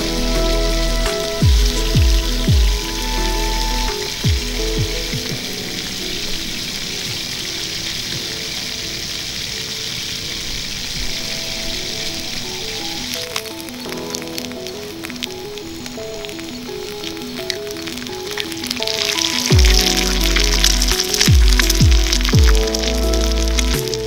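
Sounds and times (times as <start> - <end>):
soft background music: 0.0 - 24.0
steady high hiss: 0.0 - 24.0.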